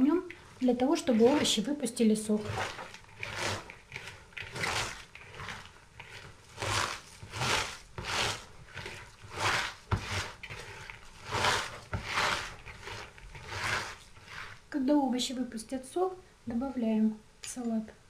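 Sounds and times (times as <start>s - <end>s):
hands squeezing crunchy vegetables: 2.2s - 14.8s.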